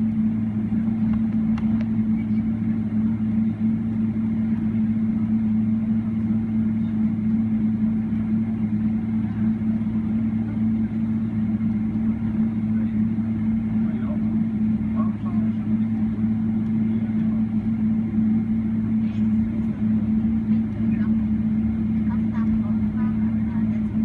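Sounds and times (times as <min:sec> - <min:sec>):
aircraft cabin engine hum: 0:00.0 - 0:24.0.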